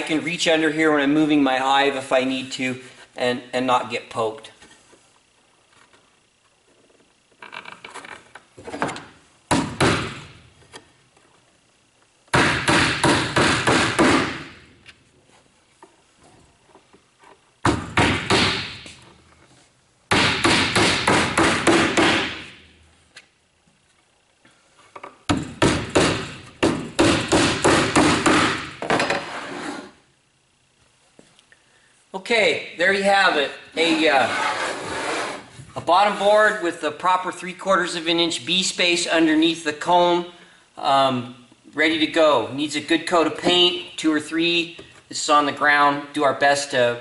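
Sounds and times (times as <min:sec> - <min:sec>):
hammer driving nails into wood: 0:12.3 - 0:14.5, 0:20.1 - 0:22.5, 0:25.3 - 0:29.2.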